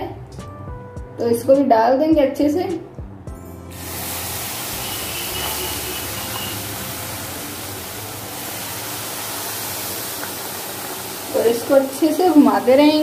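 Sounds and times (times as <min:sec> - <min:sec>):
milk hissing in hot pan: 0:03.7 - 0:13.0.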